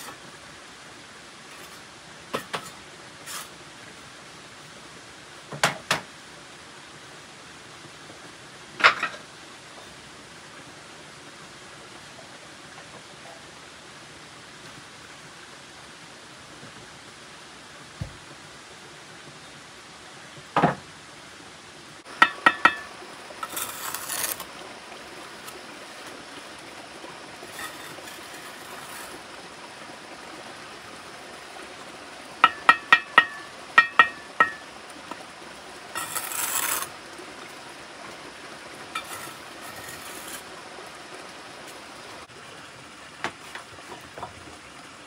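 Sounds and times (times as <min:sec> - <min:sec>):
scraping: 0:23.4 - 0:24.5, 0:27.5 - 0:29.2, 0:36.0 - 0:36.9, 0:39.0 - 0:40.4.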